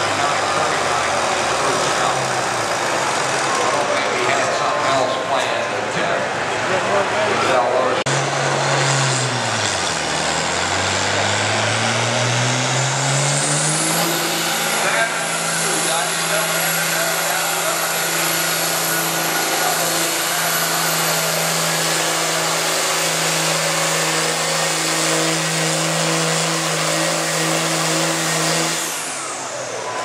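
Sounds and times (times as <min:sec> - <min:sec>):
tractor diesel engine droning: 0:00.0 - 0:30.0
engine hiss: 0:08.1 - 0:30.0.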